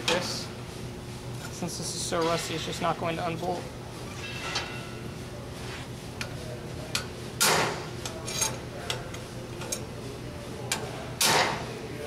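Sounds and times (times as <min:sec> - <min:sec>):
hammer clanking on metal: 0:07.4 - 0:07.8, 0:11.2 - 0:11.6.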